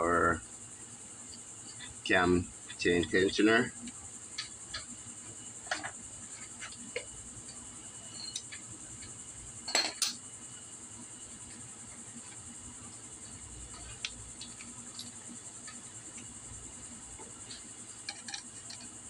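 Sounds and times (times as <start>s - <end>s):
crickets chirring: 0.0s - 19.0s
metal tools clinking: 18.0s - 18.9s.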